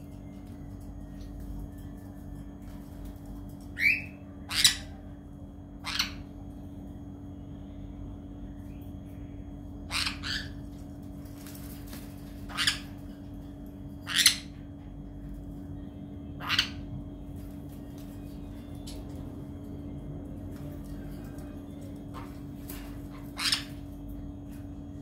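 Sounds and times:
parrot squawking: 3.8 - 4.9, 5.8 - 6.3, 9.9 - 10.6, 12.4 - 13.0, 14.0 - 14.6, 16.4 - 16.8, 23.1 - 23.8.

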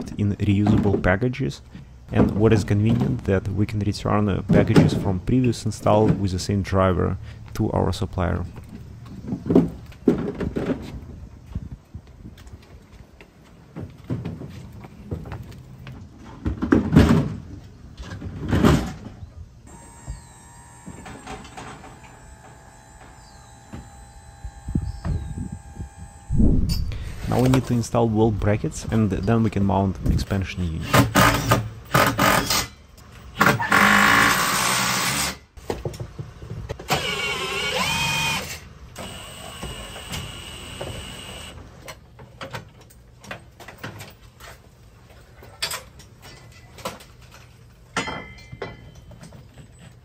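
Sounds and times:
cordless drill driving fasteners: 19.7 - 27.6, 30.9 - 32.7, 33.3 - 35.4, 36.9 - 41.6.

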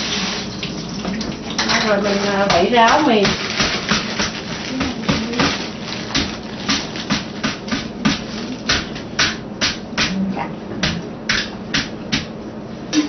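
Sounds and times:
noodles shaken in plastic colander: 1.7 - 8.7.

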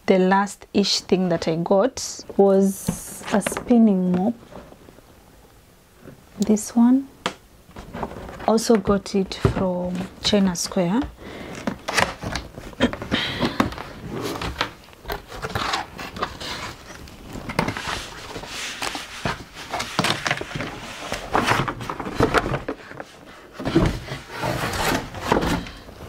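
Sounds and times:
plastic parts knocking: 7.2 - 16.4, 19.2 - 25.8
cardboard packaging rustling: 7.7 - 26.0.

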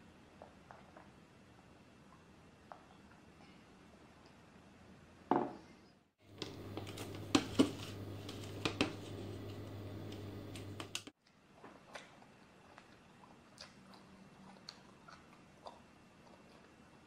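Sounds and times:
low steady hum: 6.2 - 11.1.

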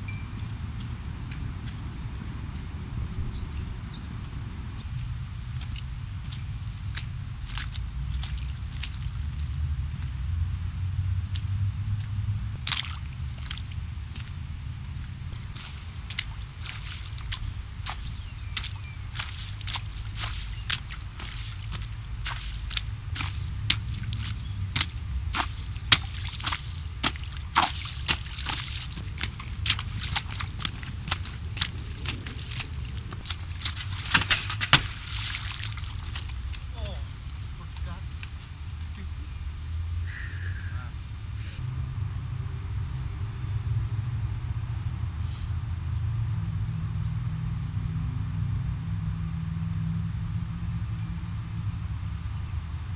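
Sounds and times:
steady low rumble: 0.0 - 52.9
shoes splashing through puddle: 5.4 - 10.2, 11.3 - 38.4.

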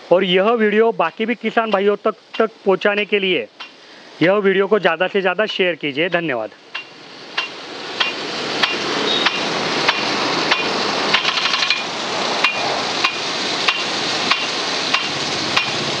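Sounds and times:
sprinkler arm ticking: 0.2 - 3.8, 4.4 - 16.0
hiss of water spray: 6.9 - 16.0.

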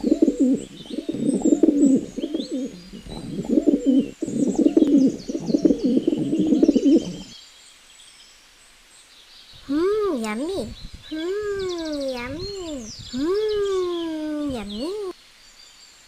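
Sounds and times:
pigeons cooing: 0.0 - 7.3, 11.1 - 15.1
small birds chirping: 0.0 - 16.0.

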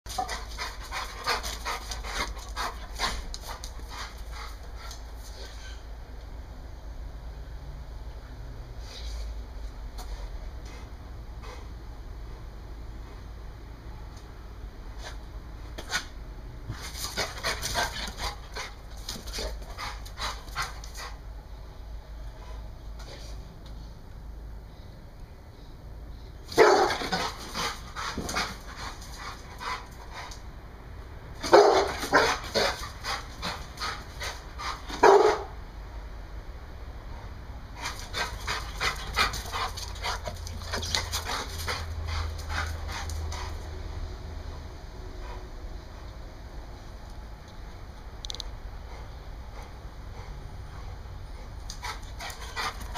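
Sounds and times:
dog panting: 0.1 - 5.0, 16.7 - 21.2, 26.6 - 30.4, 31.5 - 35.4, 37.8 - 43.7, 48.8 - 52.9.

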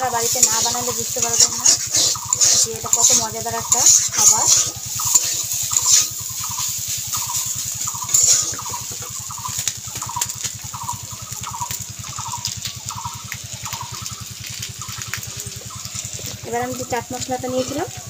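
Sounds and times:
steady low hum: 0.0 - 18.0
metal spatula scraping pan: 0.2 - 6.8, 7.4 - 8.6.

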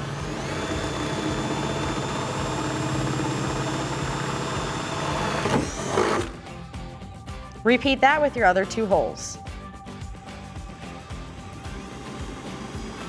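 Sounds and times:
cordless drill whining: 0.0 - 6.4, 10.3 - 13.0.

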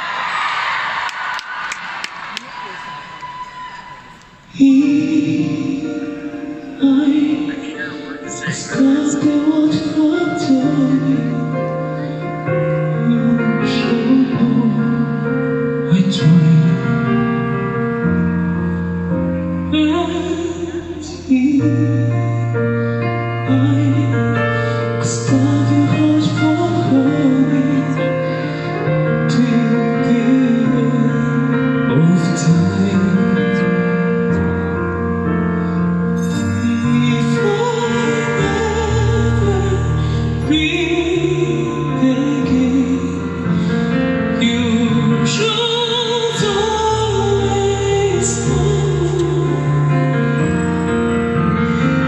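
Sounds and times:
person singing: 2.4 - 17.7, 19.6 - 34.3, 36.2 - 50.6.

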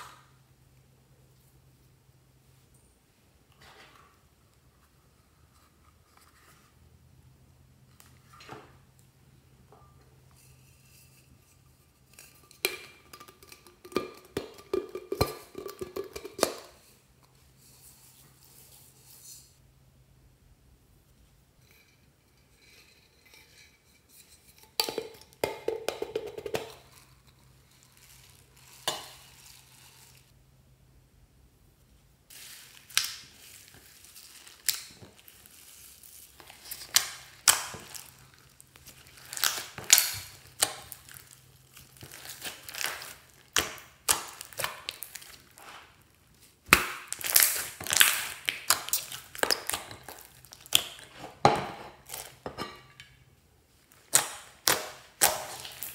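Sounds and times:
slime squishing and popping: 38.8 - 45.5, 46.7 - 51.0.

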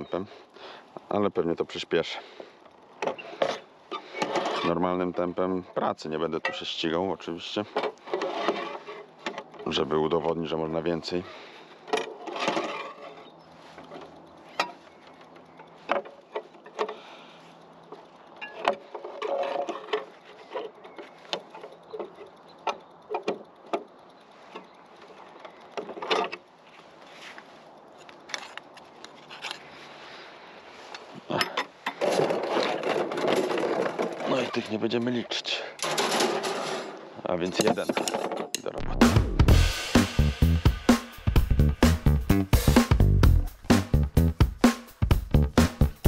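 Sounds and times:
metallic rattle: 6.2 - 26.6, 35.8 - 38.7
metal clicks and knocks: 17.9 - 26.5, 37.4 - 38.7.

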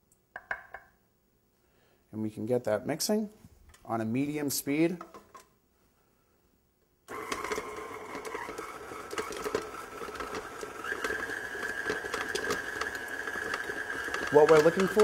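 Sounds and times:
stand mixer motor whine: 7.1 - 15.0.

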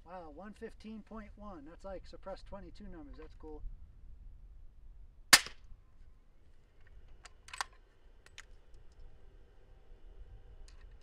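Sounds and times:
suppressed rifle shot: 5.3 - 5.7
rifle bolt clicks: 7.2 - 9.0.

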